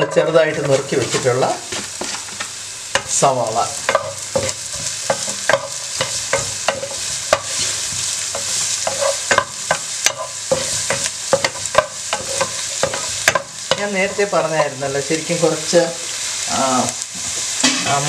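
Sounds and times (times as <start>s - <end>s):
utensil knocking and scraping pan: 0.0s - 3.1s, 3.8s - 14.8s
onions sizzling in hot oil: 0.0s - 18.0s.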